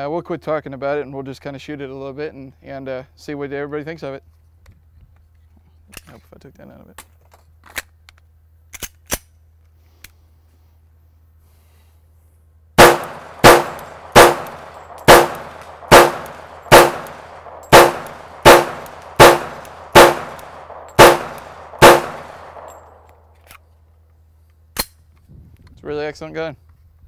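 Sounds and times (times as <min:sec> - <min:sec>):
metallic pistol handling clicks: 0:07.0 - 0:09.4, 0:13.0 - 0:23.7
pistol shots: 0:12.8 - 0:23.1.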